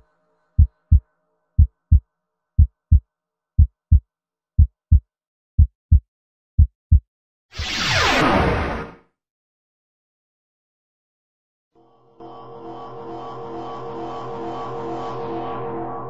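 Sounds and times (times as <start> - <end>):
heartbeat thumps: 0.6 - 1.0, 1.6 - 2.0, 2.6 - 3.0, 3.6 - 4.0, 4.6 - 5.0, 5.6 - 6.0, 6.6 - 7.0.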